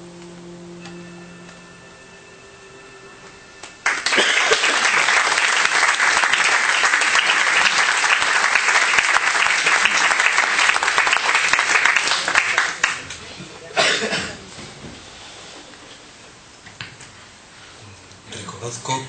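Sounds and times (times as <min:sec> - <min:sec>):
faint held tones: 0:00.0 - 0:04.0
audience applause: 0:03.8 - 0:13.3.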